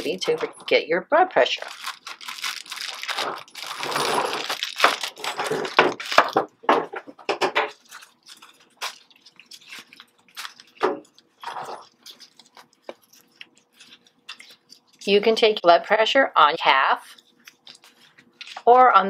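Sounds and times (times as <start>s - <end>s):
plastic packaging crinkling: 0.0s - 0.8s, 1.4s - 6.6s, 7.6s - 15.1s, 17.0s - 19.0s.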